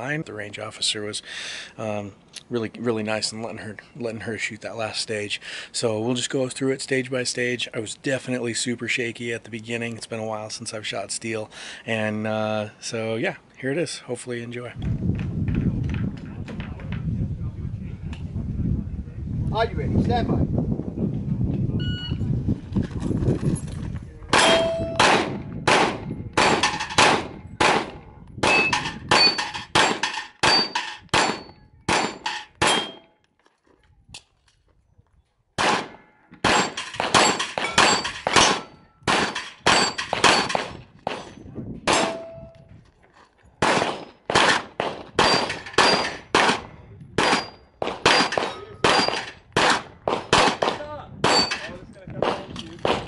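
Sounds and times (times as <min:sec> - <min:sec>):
steel plates ringing: 0:24.4 - 0:25.0, 0:28.5 - 0:33.1, 0:36.6 - 0:40.6, 0:41.9 - 0:42.5
pistol firing rapid shots: 0:24.4 - 0:33.0, 0:35.6 - 0:41.2, 0:41.9 - 0:42.2, 0:43.6 - 0:51.5.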